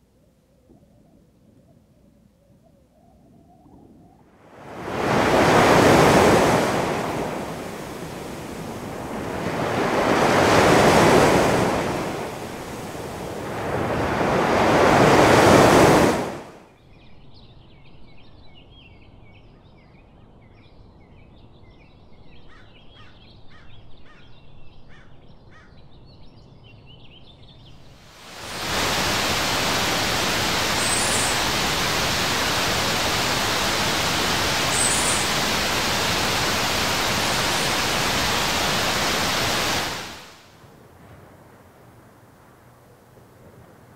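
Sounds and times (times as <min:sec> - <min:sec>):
ocean waves washing in: 0:03.4 - 0:16.7, 0:27.9 - 0:43.9
small birds chirping: 0:24.1 - 0:40.2
waterfall splashing into pool: 0:28.1 - 0:40.6.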